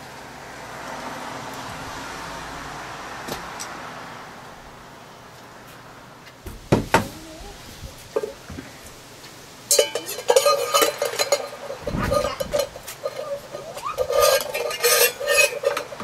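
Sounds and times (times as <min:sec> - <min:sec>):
wire scraping in tin can: 0:09.7 - 0:16.0.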